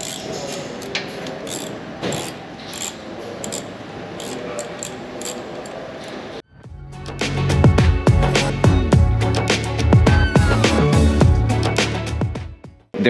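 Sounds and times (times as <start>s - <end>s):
ratchet driver clicking: 0.0s - 5.8s.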